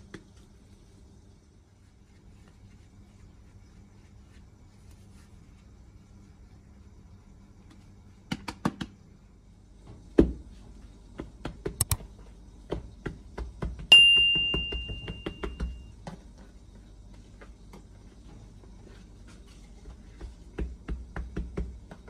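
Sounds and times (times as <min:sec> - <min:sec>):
hands kneading dough: 0:00.0 - 0:09.0, 0:09.9 - 0:22.0
ringing ding: 0:13.9 - 0:15.6.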